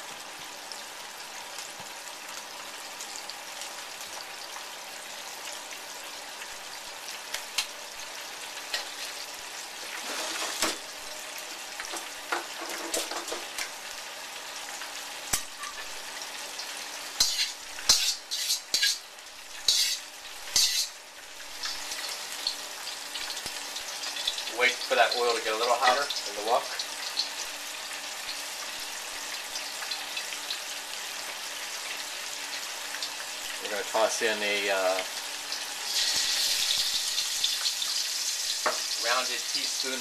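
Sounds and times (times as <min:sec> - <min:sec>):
cooking oil sizzling: 0:00.0 - 0:40.0.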